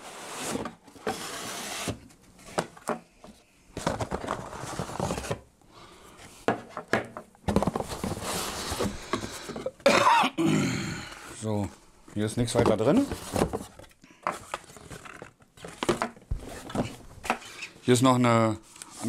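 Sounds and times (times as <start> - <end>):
cardboard insert scraping in carton: 0.0 - 2.1
cardboard rustling: 3.8 - 5.5, 7.4 - 9.7, 12.2 - 17.4.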